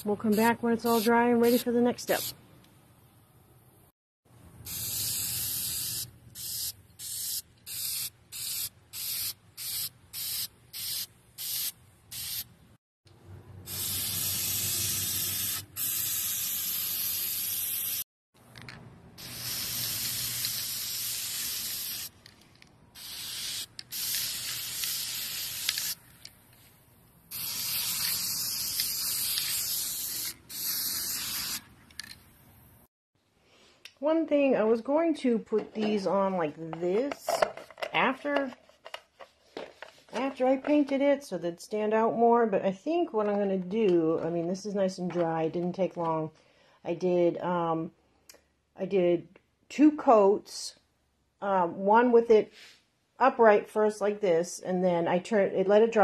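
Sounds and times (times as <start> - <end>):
aerosol spray can hissing: 0.0 - 2.3, 4.7 - 12.5, 13.7 - 18.0, 19.2 - 22.1, 23.0 - 26.0, 27.3 - 31.6.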